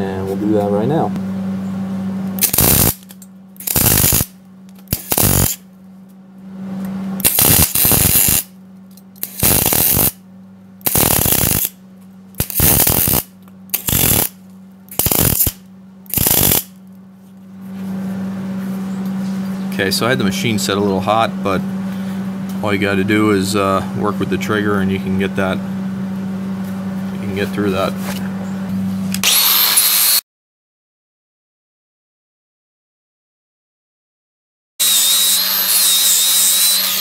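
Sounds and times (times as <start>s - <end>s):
steady low hum: 0.0s - 30.1s
welding arc bursts: 2.4s - 5.6s, 7.2s - 8.5s, 9.2s - 10.2s, 10.8s - 11.8s, 12.4s - 16.8s, 29.2s - 30.2s, 34.8s - 37.0s.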